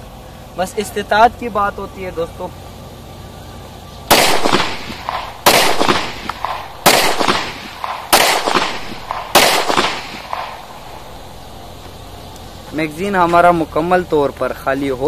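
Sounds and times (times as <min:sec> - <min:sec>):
pistol shots with echo: 0:04.1 - 0:11.2.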